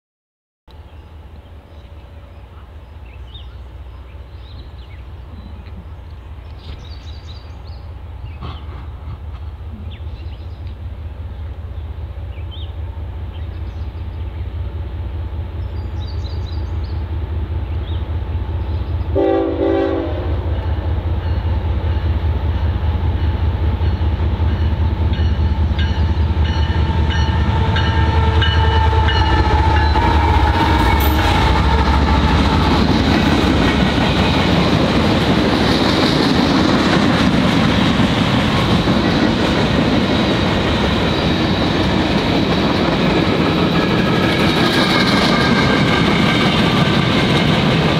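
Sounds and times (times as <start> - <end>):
diesel locomotives rumbling: 0.7 - 47.9
train horn blasts: 19.1 - 21.4, 24.6 - 32.6
freight cars clattering on rails: 28.8 - 47.9.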